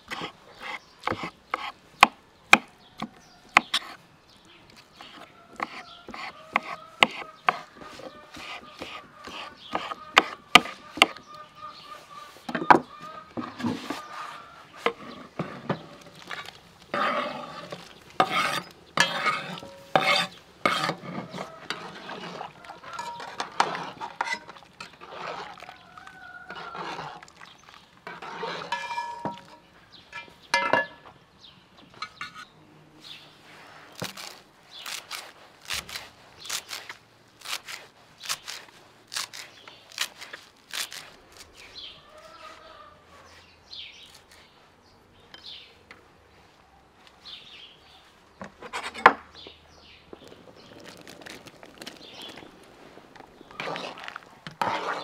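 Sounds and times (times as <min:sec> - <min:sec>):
knife chopping on wooden block: 0:05.6 - 0:07.7
metal ladle scraping a pot: 0:13.3 - 0:31.0, 0:50.1 - 0:55.0.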